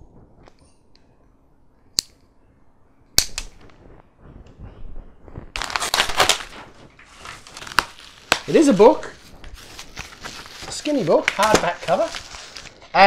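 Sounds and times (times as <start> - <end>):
paper envelope tearing and crinkling: 5.6 - 12.9.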